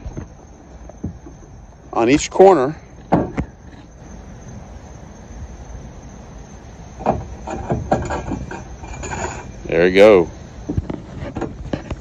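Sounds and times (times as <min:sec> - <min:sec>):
metal pole knocking and scraping: 0:07.0 - 0:09.6.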